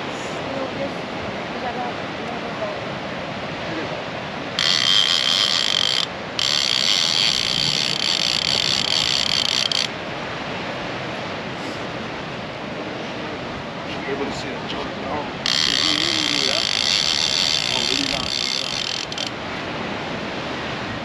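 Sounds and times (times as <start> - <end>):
fishing reel clicker ratcheting: 4.6 - 9.9, 15.5 - 19.3.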